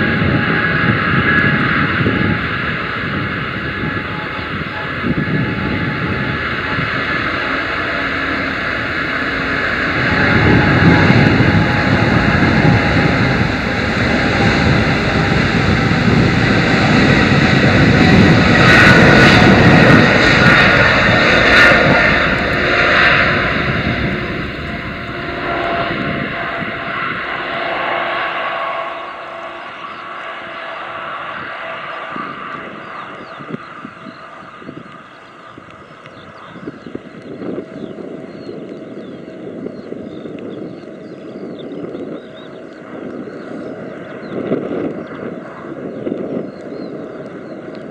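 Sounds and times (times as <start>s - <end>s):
jet engines roaring on landing: 0.0s - 47.9s.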